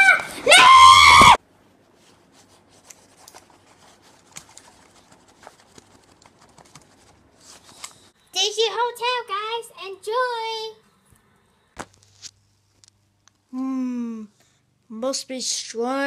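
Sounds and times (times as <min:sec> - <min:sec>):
child squealing: 0:00.0 - 0:01.4
soft toys rustling: 0:01.6 - 0:08.2.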